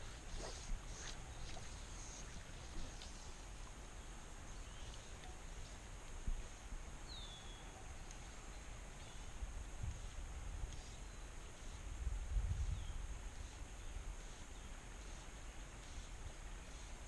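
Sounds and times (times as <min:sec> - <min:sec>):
faint bird chirps: 0:00.0 - 0:05.8, 0:07.0 - 0:09.4
steady high hiss: 0:00.0 - 0:17.0.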